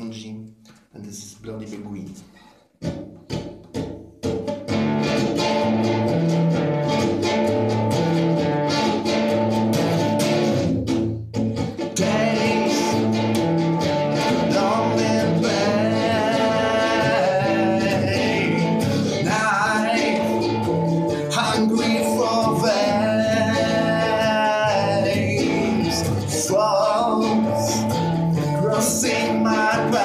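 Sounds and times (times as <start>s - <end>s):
guitar playing: 2.8s - 30.0s
man singing: 11.9s - 13.4s, 14.1s - 30.0s.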